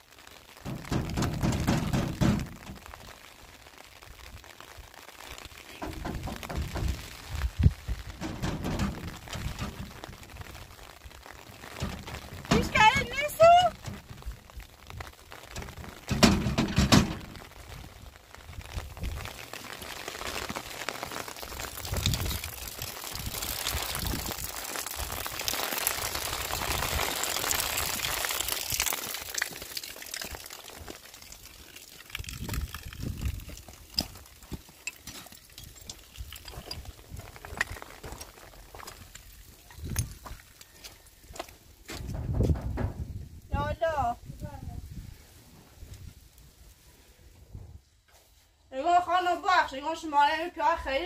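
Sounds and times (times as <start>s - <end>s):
rain falling: 0.0s - 47.1s
knocking on metal door: 0.7s - 2.6s, 5.9s - 7.0s, 16.1s - 17.2s
footsteps on stony ground: 5.6s - 17.8s, 28.8s - 43.2s.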